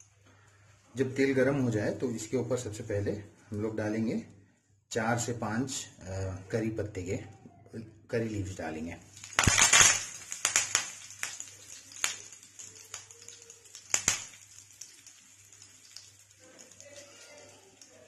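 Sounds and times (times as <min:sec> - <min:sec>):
leaves sizzling in hot oil: 0:08.4 - 0:18.0
oil popping and crackling: 0:08.5 - 0:18.0.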